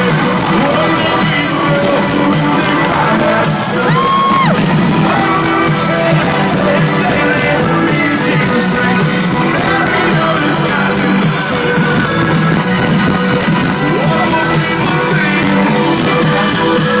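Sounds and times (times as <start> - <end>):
drums: 0.0 - 17.0
live rock band playing: 0.0 - 17.0.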